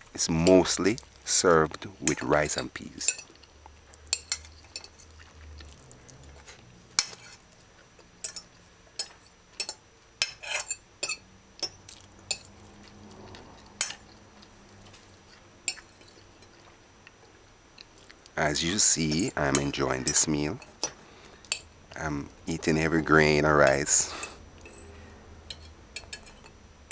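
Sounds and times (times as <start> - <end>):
fork clinking on a china plate: 8.2 - 12.5, 25.5 - 26.6.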